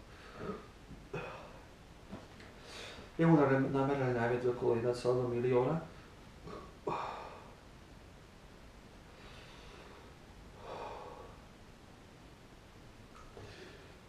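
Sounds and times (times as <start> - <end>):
man breathing hard: 6.9 - 7.6, 9.1 - 11.5.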